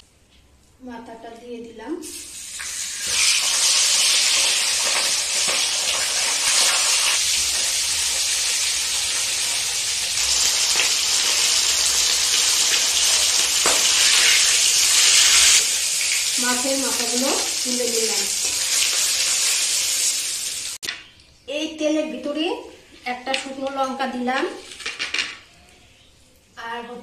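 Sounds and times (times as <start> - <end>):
fish frying in hot oil: 2.4 - 20.8.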